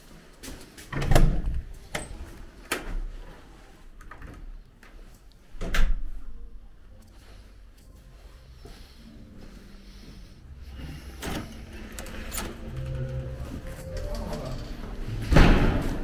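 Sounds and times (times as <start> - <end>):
door thumps and clunks: 15.3 - 16.0.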